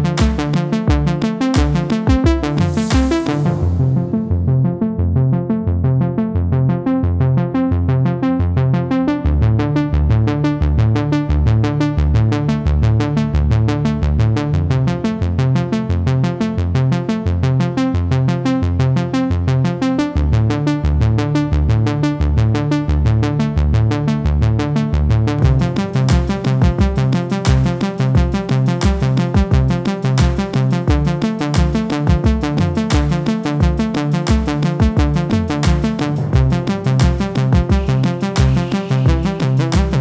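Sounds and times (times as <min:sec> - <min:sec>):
drum machine beat: 0:00.0 - 0:03.9, 0:25.4 - 0:40.0
electronic synthesizer music: 0:00.0 - 0:14.0, 0:18.4 - 0:40.0.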